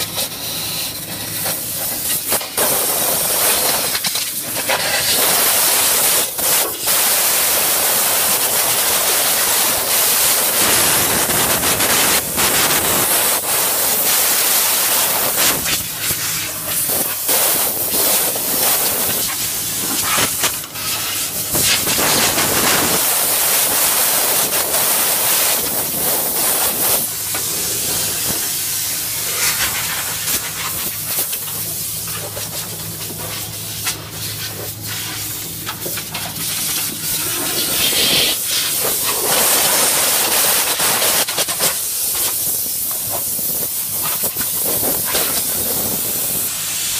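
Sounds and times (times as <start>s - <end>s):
blasting nozzle hissing air: 0.0s - 46.9s
steady low hum: 9.0s - 40.2s.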